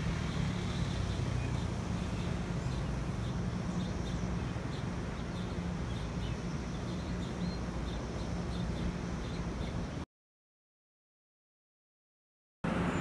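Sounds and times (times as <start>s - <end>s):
birds chirping: 0.0s - 10.0s
road traffic hum: 0.0s - 10.1s, 12.6s - 13.0s.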